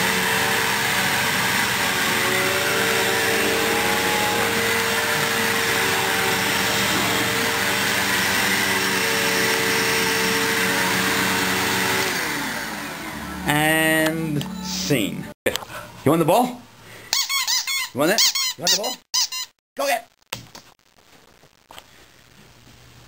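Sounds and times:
vacuum cleaner running: 0.0s - 14.4s
vacuum cleaner winding down: 0.0s - 14.4s.

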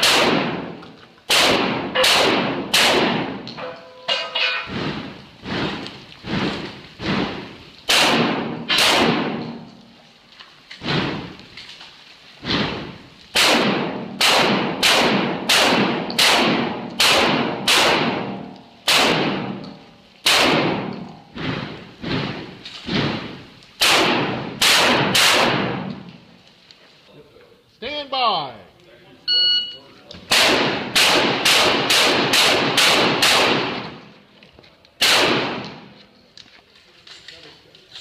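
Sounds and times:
shotgun shots echoing: 0.0s - 3.6s, 7.0s - 9.7s, 12.4s - 26.2s, 30.3s - 34.1s, 35.0s - 36.0s.

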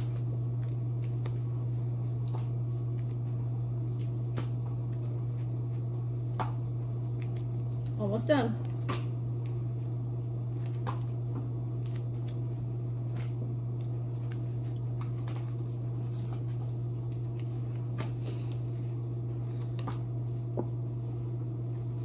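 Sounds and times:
dishwasher humming: 0.0s - 22.0s
paper flashcards flipping: 10.5s - 18.6s.

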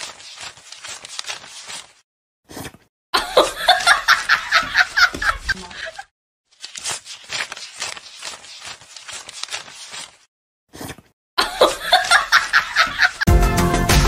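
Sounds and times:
banknotes being counted by hand: 0.0s - 2.0s, 6.6s - 10.3s
person's voice: 5.5s - 6.0s.

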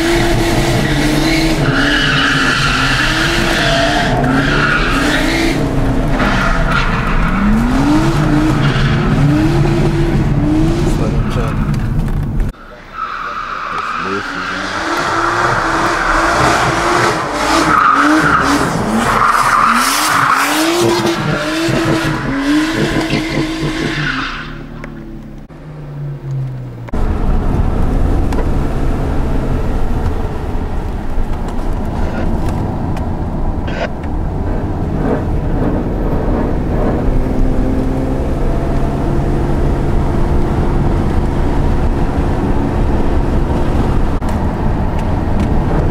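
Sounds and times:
car cabin engine and road noise: 0.0s - 45.9s
car engine revving: 0.0s - 45.9s
tyres squealing: 12.6s - 24.7s.

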